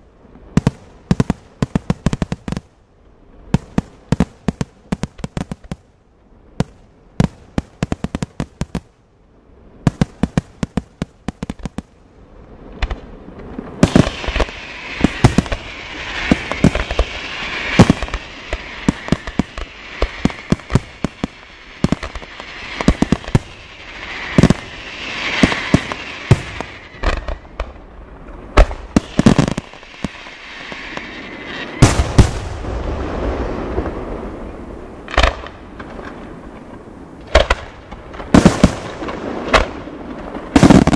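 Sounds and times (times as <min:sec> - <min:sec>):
firework cracks: 0:00.5 - 0:02.7, 0:03.5 - 0:05.9, 0:06.6 - 0:08.9, 0:09.8 - 0:12.0, 0:12.7 - 0:40.9
firework shell bursts crackling: 0:03.6 - 0:05.8, 0:13.8 - 0:27.9, 0:28.6 - 0:32.4
loud firework bangs: 0:09.8 - 0:11.9, 0:13.8 - 0:34.0, 0:37.3 - 0:40.9.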